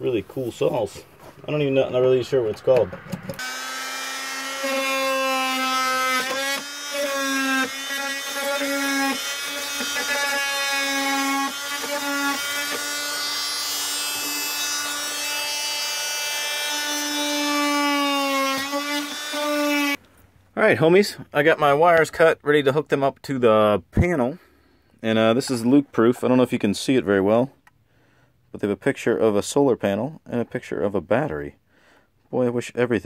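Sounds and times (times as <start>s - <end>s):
oscillating tool cutting wood: 3.2s - 20.0s.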